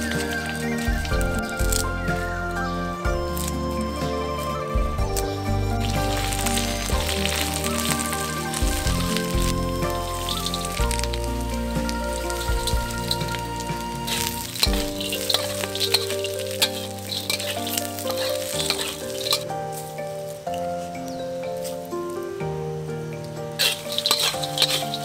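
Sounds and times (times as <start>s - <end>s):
soft background music: 0.0s - 25.0s
food sizzling in oil: 5.4s - 20.1s, 23.5s - 25.0s
spatula scraping wok: 5.5s - 20.0s.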